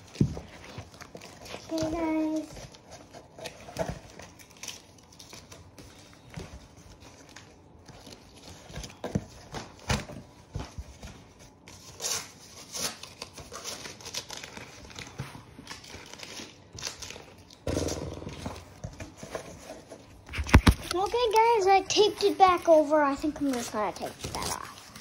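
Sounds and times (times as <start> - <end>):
handling taps and rustles: 0.0 - 4.4, 18.2 - 25.0.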